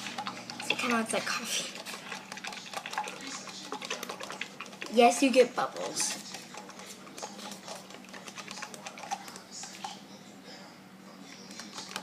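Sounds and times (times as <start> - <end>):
utensil stirring slime: 0.0 - 10.1, 11.5 - 12.0.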